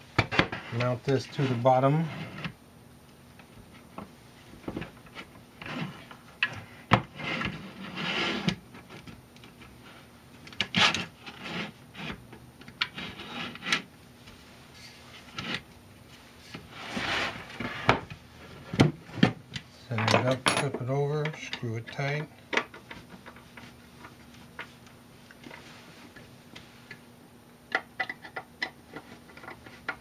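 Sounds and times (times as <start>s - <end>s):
metal parts scraping on wood: 12.9s - 13.9s.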